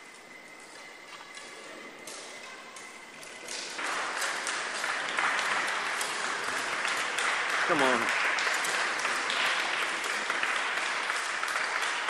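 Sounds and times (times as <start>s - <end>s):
crowd applauding: 3.5s - 12.0s.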